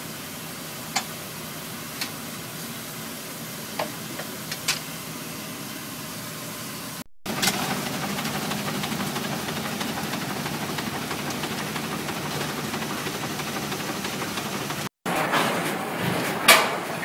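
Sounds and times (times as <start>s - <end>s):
steam fire engine pump: 0.0s - 14.9s.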